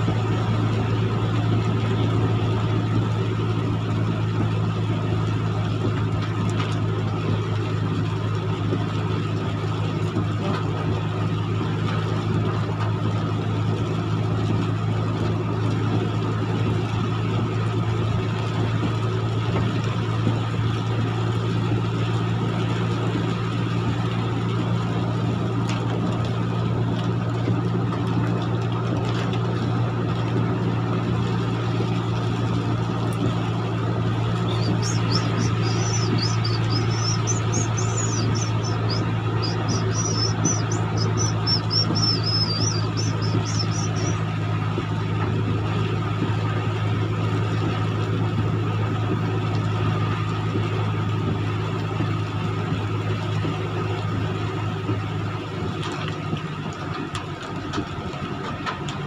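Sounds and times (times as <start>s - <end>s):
diesel truck engine drone: 0.0s - 59.0s
rain and tyres on wet road: 0.0s - 59.0s.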